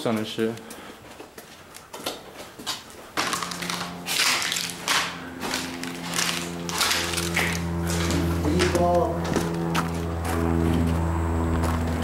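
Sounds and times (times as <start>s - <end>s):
footsteps crunching on debris: 0.0s - 12.0s
music with held low notes: 3.3s - 12.0s.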